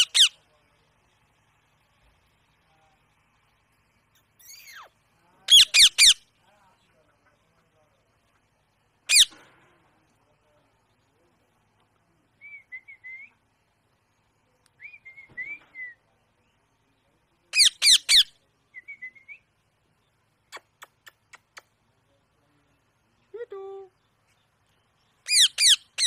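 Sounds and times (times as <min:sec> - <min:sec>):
parakeet screeching: 0:00.0 - 0:00.4, 0:04.4 - 0:04.9, 0:05.5 - 0:06.2, 0:09.1 - 0:09.3, 0:17.6 - 0:18.3, 0:25.3 - 0:26.0
parakeet chirping softly: 0:00.0 - 0:01.6, 0:02.6 - 0:07.6, 0:08.2 - 0:09.4, 0:15.8 - 0:26.0.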